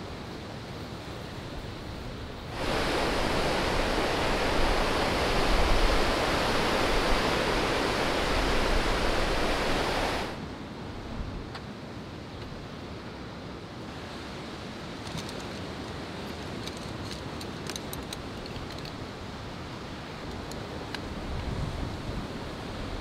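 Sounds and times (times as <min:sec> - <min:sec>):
wind: 0:00.0 - 0:23.0
waves washing onto pebble shore: 0:02.5 - 0:10.4.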